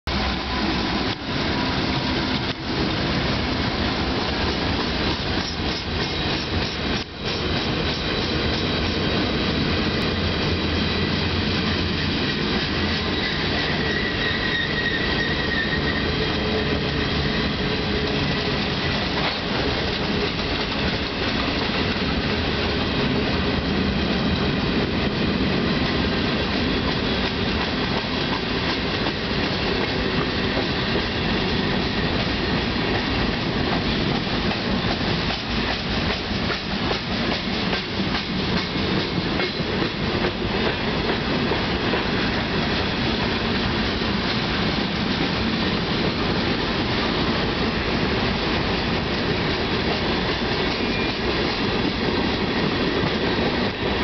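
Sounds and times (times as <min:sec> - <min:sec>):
train wheels rumbling on rail: 0:00.0 - 0:54.0
high wheel squeal: 0:12.9 - 0:16.6.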